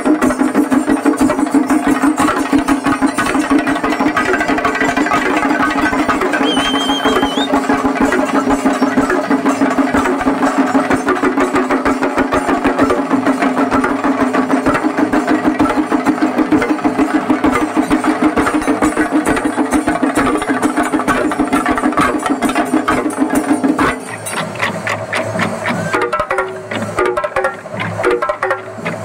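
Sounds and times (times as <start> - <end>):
fast drumbeat: 0.0 - 28.9.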